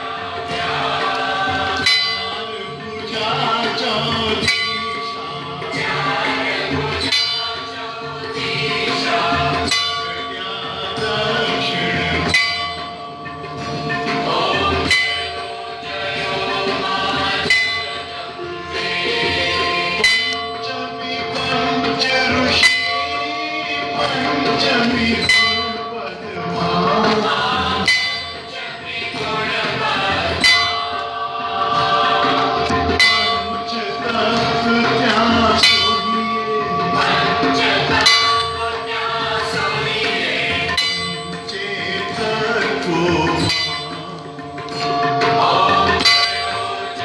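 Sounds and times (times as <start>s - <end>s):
congregation singing: 0.0s - 47.0s
large temple bell ringing: 0.0s - 47.0s.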